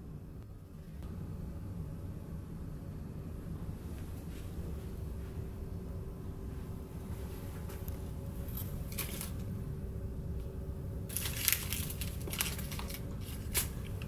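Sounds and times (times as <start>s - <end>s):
low cabin hum: 0.0s - 14.0s
crinkling handling noises: 7.0s - 9.6s, 11.1s - 14.0s.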